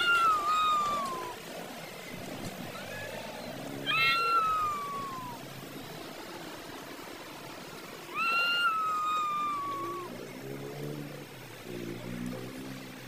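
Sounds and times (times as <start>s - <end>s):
cat meowing: 0.0s - 1.4s, 3.8s - 5.4s, 8.1s - 10.2s.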